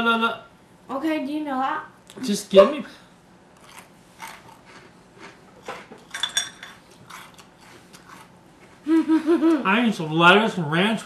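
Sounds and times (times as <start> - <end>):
crouton being chewed: 3.6 - 8.4.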